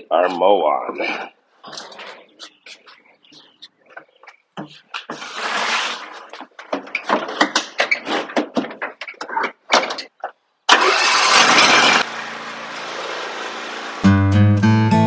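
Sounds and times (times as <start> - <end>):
plastic chute knocking and rattling: 6.6 - 10.4
mower engine starting and idling: 10.7 - 14.2.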